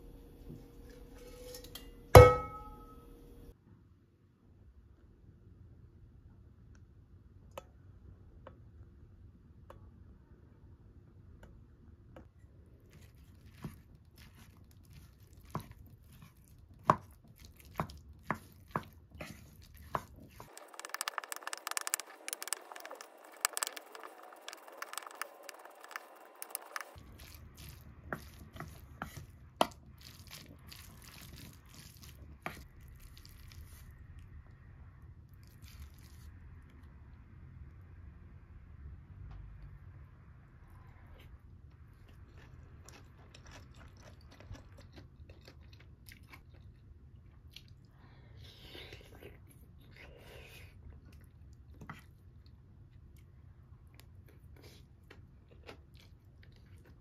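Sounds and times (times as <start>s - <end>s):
spoon tapping a pot: 1.6s - 2.9s
wet squishing of mixed food: 12.6s - 37.2s, 41.0s - 57.0s.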